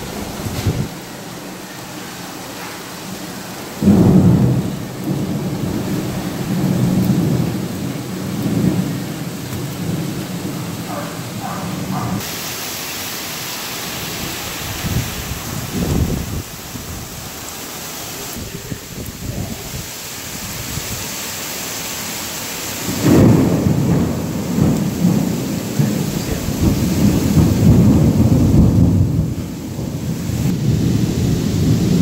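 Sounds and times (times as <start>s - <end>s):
thunder rumbling: 0.0s - 1.1s, 3.6s - 12.4s, 14.0s - 17.4s, 18.3s - 21.1s, 22.7s - 32.0s
heavy rain pouring: 0.0s - 32.0s.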